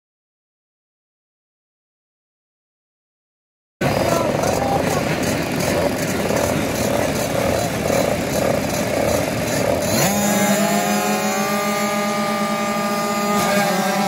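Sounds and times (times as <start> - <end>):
dirt bike engines revving: 3.8 - 14.0.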